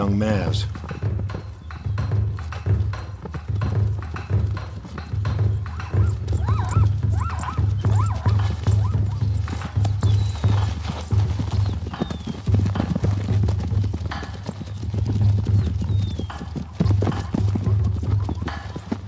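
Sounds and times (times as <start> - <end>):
background music with pulsing beat: 0.0 - 19.0
hooves stamping and scuffling: 0.0 - 19.0
zebra squealing calls: 5.2 - 11.2.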